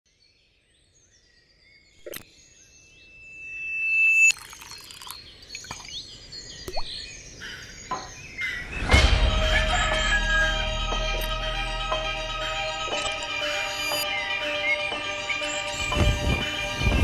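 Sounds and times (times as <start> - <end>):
small high chirps: 3.2 - 7.0
liquid drips and plops: 4.3 - 6.0, 6.7 - 6.9.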